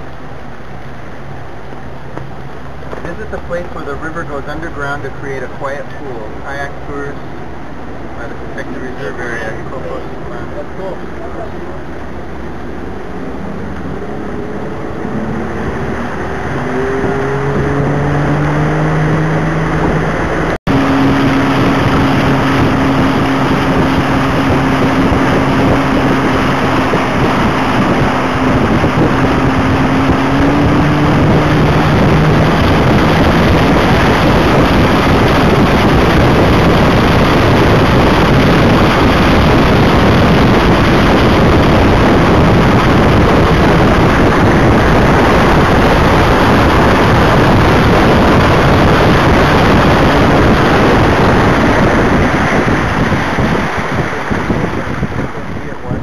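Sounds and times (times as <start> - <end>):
motorboat engine speeding up: 0.0 - 56.0
water rushing along hull: 0.0 - 56.0
wind on microphone: 11.8 - 56.0.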